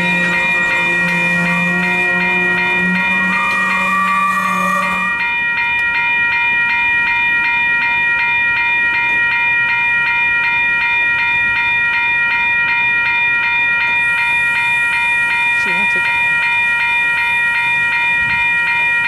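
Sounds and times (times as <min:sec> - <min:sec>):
freight train rumbling past: 0:00.0 - 0:07.8
railroad crossing bell ringing: 0:00.0 - 0:19.0.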